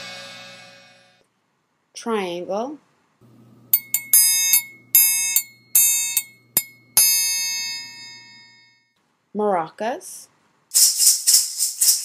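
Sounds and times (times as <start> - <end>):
triangle ringing: 3.7 - 8.8.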